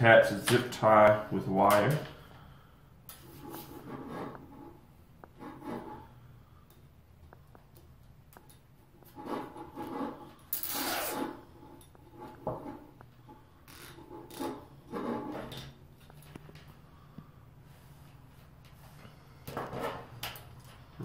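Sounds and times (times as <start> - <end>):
zip tie rasping: 10.5 - 11.4.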